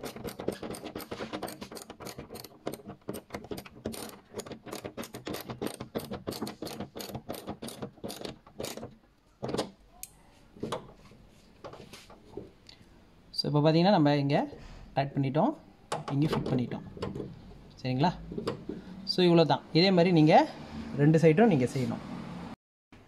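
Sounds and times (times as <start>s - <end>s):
ratchet wrench clicking: 0.0s - 8.8s
tool knocks: 18.3s - 18.8s.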